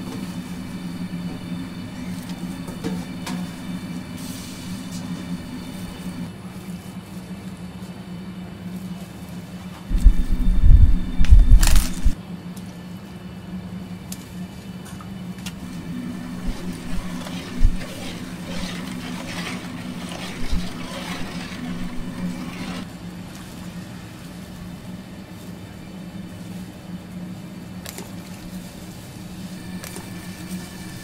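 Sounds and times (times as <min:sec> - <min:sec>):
water sloshing in a pot: 0:00.0 - 0:06.2, 0:15.6 - 0:22.9
steady low hum: 0:00.0 - 0:06.4, 0:09.9 - 0:12.2, 0:15.6 - 0:23.0.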